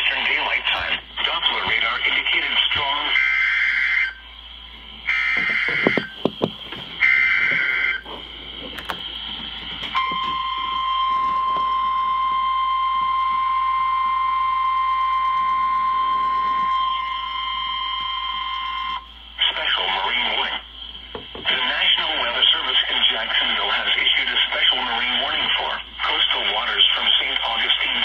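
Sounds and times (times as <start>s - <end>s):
radio hiss: 0.0s - 10.4s, 19.1s - 28.0s
steady warning tone: 0.0s - 28.0s.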